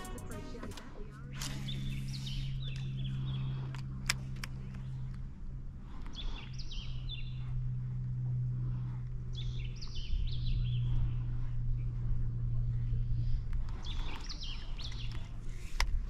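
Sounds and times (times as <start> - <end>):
steady low hum: 0.0 - 16.0
birds calling: 1.3 - 11.4, 13.2 - 15.8.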